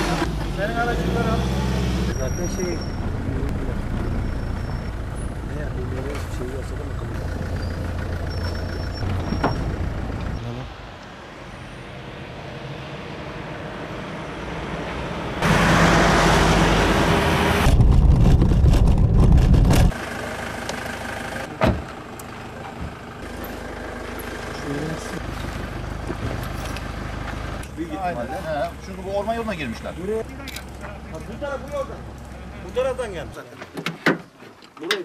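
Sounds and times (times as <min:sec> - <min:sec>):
vehicle engines rumbling: 0:00.0 - 0:33.7
loud rushing noise: 0:11.2 - 0:20.0
heavy low rumble: 0:16.8 - 0:19.9.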